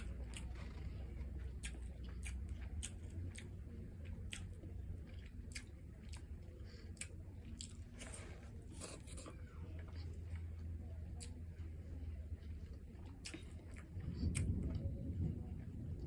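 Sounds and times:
person chewing food: 0.0 - 15.2
steady low hum: 0.0 - 16.0.

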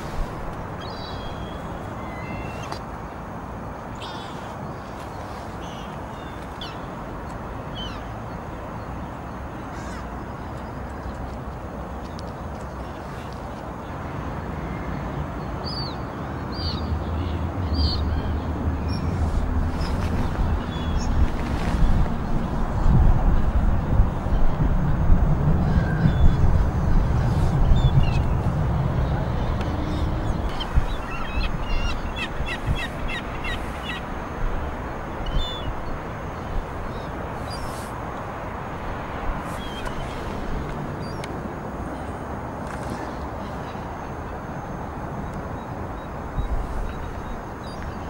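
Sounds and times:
wind buffeting microphone: 17.5 - 42.6.

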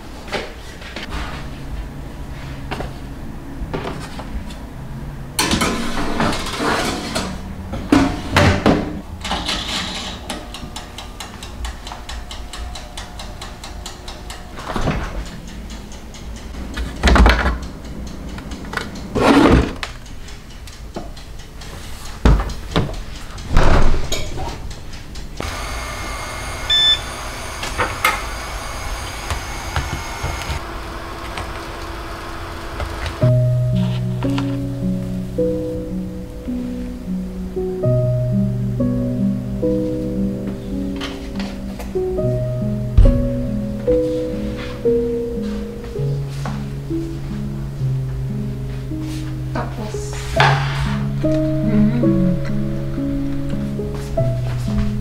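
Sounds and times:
plastic drawers sliding: 18.8 - 19.9
refrigerator door opening and closing: 22.3 - 24.6.

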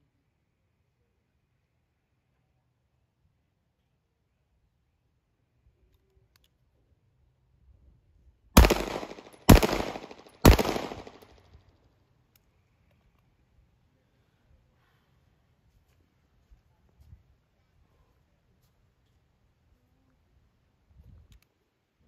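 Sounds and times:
pistol shots with echo: 8.6 - 11.3.

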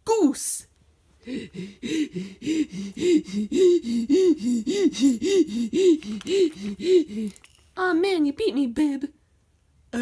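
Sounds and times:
person panting huffs: 1.2 - 7.6.

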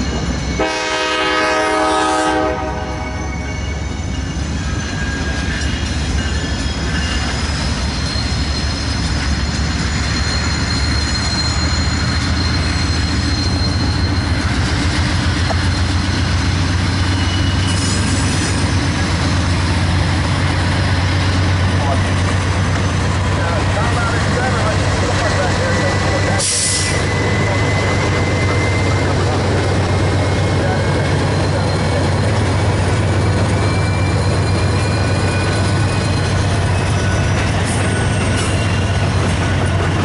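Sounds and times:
diesel locomotives rumbling: 0.0 - 40.0
locomotive air horn: 0.6 - 3.3.

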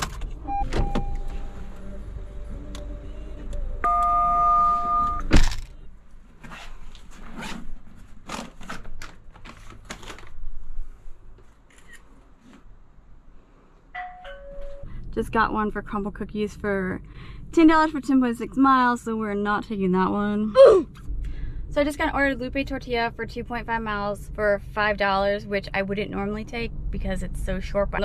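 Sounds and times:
two-note electronic tone: 0.5 - 2.6, 3.8 - 5.3.

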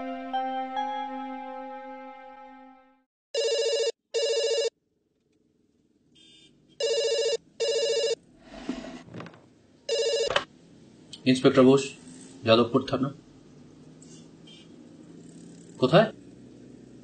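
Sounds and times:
background music: 0.0 - 3.0
telephone ringing: 3.4 - 4.8, 6.8 - 8.2, 9.9 - 10.5.

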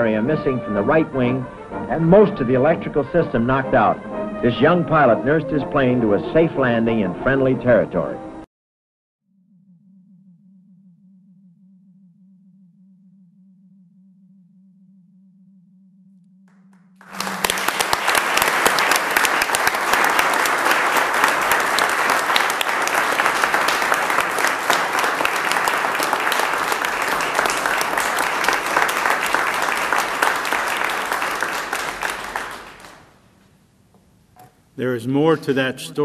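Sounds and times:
hands clapping: 16.5 - 33.1.

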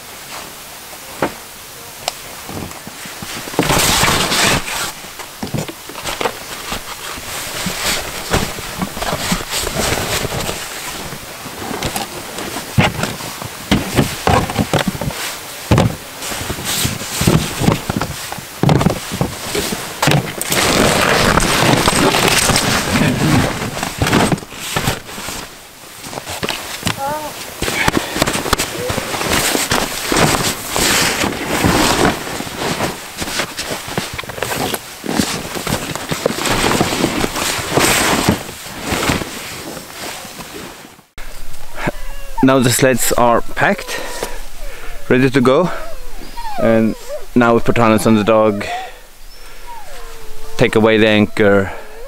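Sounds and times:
nylon bag rustling: 2.4 - 41.8
knocks of boxes and bags: 2.5 - 27.0, 27.6 - 40.6.

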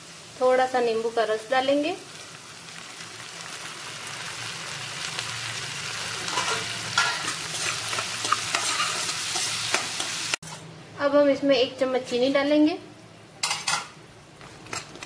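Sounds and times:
onion and peanuts sizzling in oil: 0.0 - 15.0
spatula scraping and stirring: 6.2 - 10.2.

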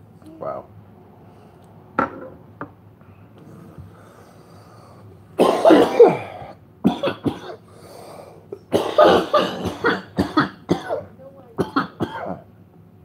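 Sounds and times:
man coughing hard: 5.4 - 7.6, 8.6 - 12.4.

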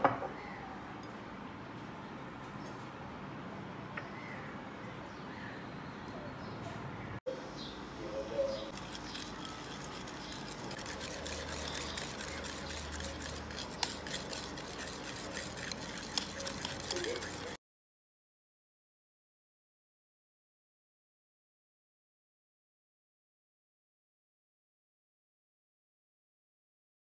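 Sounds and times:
whisk tapping against ceramic bowl: 8.7 - 17.6.

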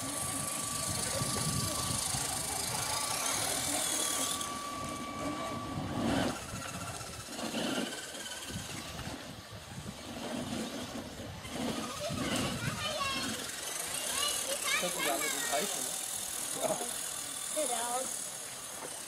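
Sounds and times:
outdoor noise: 0.0 - 19.0
small electric motor whining: 0.0 - 19.0.

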